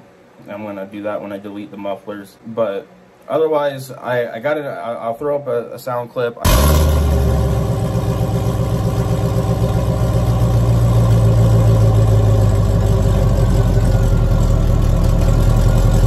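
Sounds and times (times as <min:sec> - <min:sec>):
car engine idling: 0:06.5 - 0:16.0.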